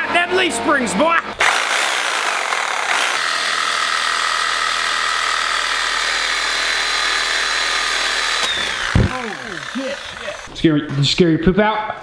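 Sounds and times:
reciprocating saw cutting metal: 1.4 - 10.6.

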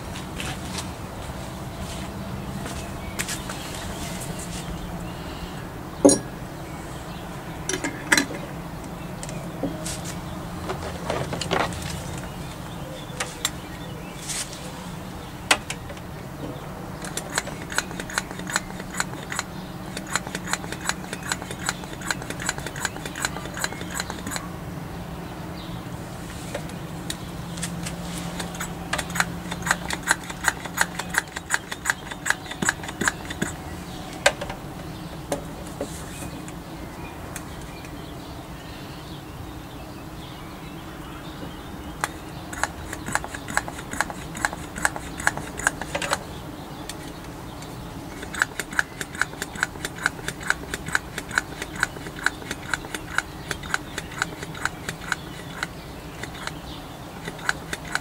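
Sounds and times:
hand vacuum pump clicking: 17.0 - 24.4, 28.4 - 33.6, 42.0 - 46.3, 48.1 - 58.0.

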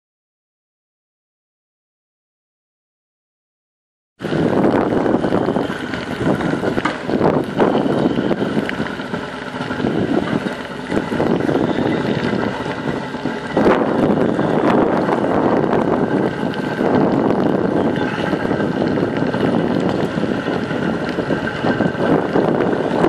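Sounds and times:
heavy rain: 4.2 - 23.0
wind buffeting microphone: 4.2 - 23.0.

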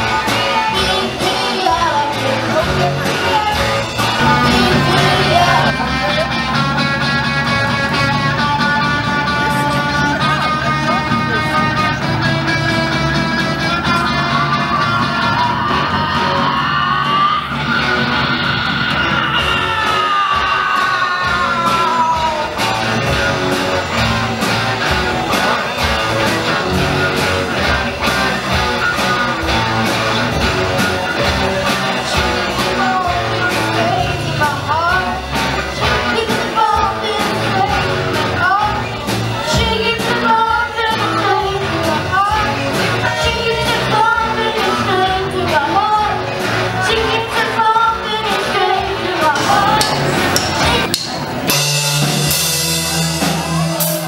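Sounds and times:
boy singing into microphone: 0.0 - 5.7, 13.7 - 17.6, 32.2 - 35.2, 35.8 - 50.0
rock band playing: 0.0 - 54.0.

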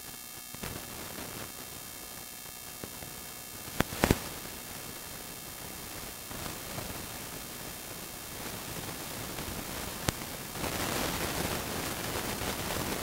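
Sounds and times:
faint electrical hum: 0.0 - 13.0
static hiss: 0.0 - 13.0
sharp pops: 3.7 - 4.3.

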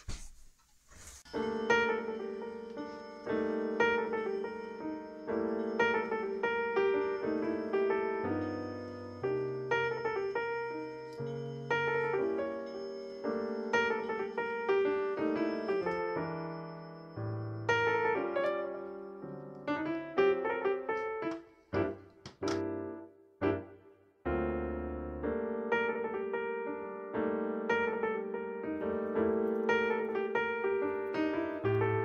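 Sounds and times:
piano music: 1.3 - 32.0.

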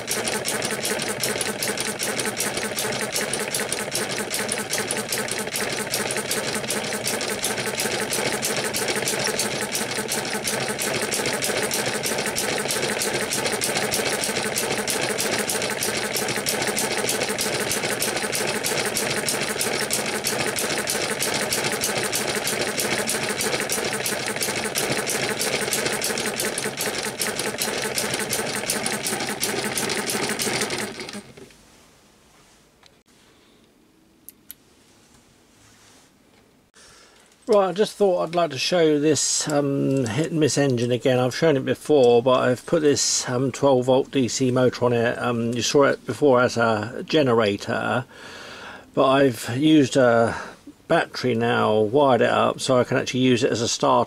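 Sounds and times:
model gas engine clattering: 0.0 - 31.4.

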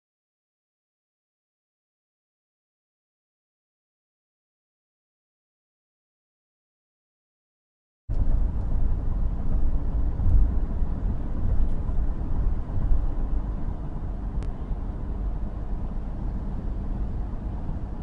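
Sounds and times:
car road and engine rumble: 8.1 - 18.0.

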